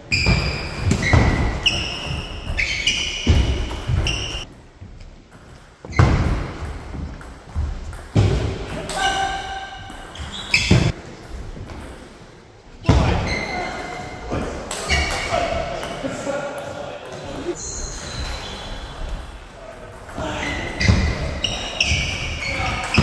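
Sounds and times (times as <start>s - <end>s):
shoes squeaking on floor: 0.0s - 4.5s, 5.8s - 6.7s, 9.0s - 11.0s, 13.0s - 14.2s, 14.8s - 15.5s, 17.4s - 19.3s, 20.2s - 23.0s.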